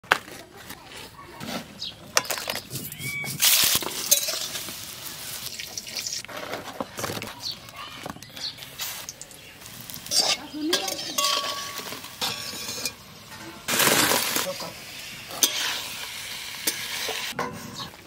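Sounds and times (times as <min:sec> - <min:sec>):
noisy sizzling or splashing: 0:03.3 - 0:06.3, 0:08.7 - 0:17.4.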